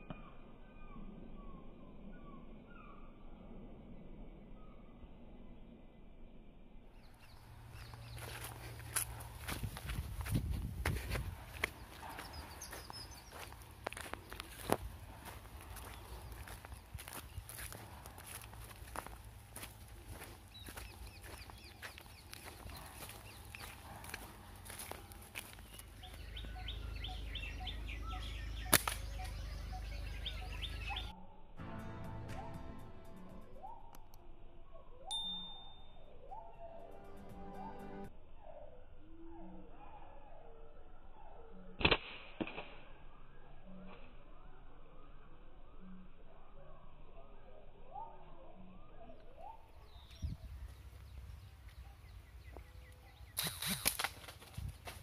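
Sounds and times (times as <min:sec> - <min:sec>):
steady low rumble: 0:00.3 - 0:35.0
small birds chirping: 0:07.0 - 0:31.2, 0:47.8 - 0:55.0
bird chirping rapidly: 0:25.5 - 0:31.1, 0:52.1 - 0:53.9
sharp cracks: 0:28.6 - 0:29.3, 0:41.8 - 0:42.9, 0:53.4 - 0:54.5
sharp snap: 0:28.7 - 0:29.2, 0:41.8 - 0:42.8, 0:53.4 - 0:54.2.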